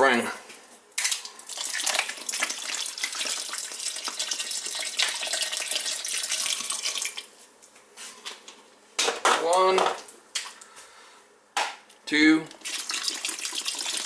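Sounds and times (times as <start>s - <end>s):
water pouring into pot: 1.0s - 7.4s, 12.5s - 14.0s.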